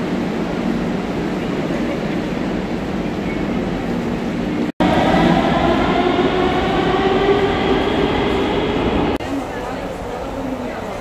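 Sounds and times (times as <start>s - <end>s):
station rumble: 4.6s - 9.6s.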